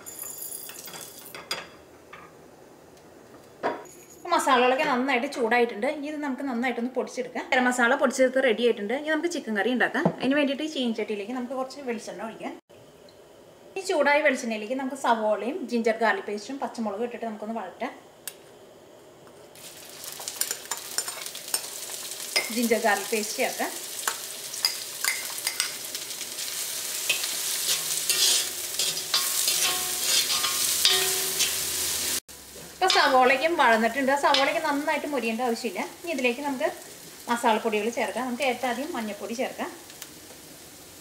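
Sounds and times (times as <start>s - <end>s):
onions sizzling in hot oil: 19.6s - 41.0s
metal spoon scraping pan: 20.3s - 21.7s, 27.1s - 31.7s.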